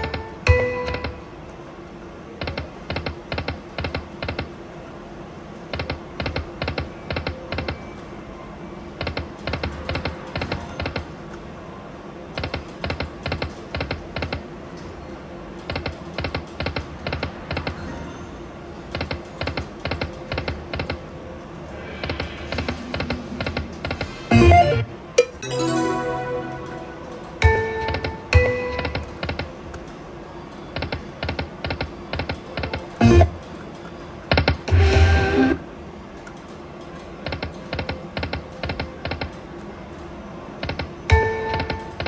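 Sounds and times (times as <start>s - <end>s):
slot machine tones: 24.3s - 29.0s
slot machine clicks: 24.3s - 29.5s.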